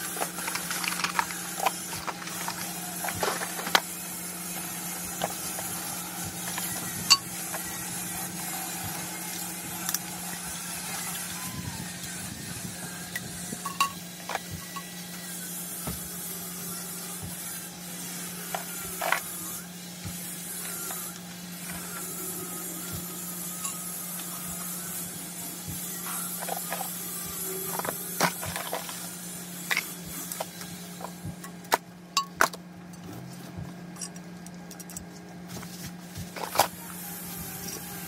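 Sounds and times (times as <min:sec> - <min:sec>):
steady low hum: 0:00.0 - 0:38.0
plastic parts clicking and knocking: 0:00.2 - 0:03.9.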